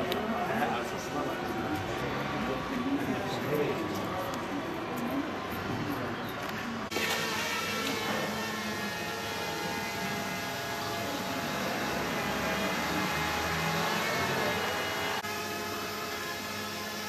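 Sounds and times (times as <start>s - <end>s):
mechanical hum: 0.0s - 17.0s
outdoor noise: 0.0s - 17.0s.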